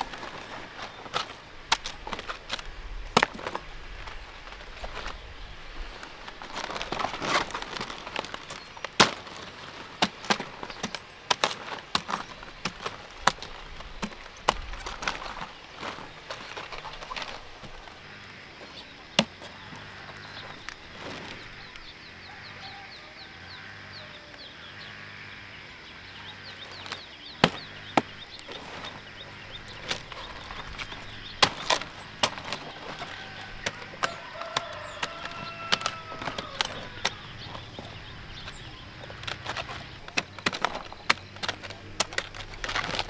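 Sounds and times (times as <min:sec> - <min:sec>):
chickens clucking: 0:12.3 - 0:43.0.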